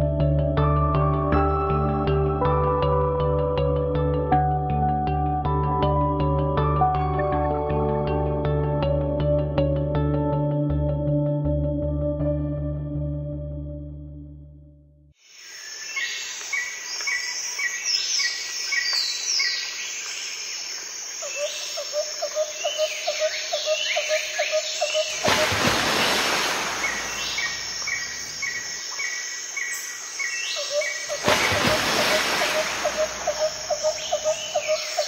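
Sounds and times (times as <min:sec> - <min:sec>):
wild birds calling: 0:21.2 - 0:35.0
burst of rushing noise: 0:25.2 - 0:27.8.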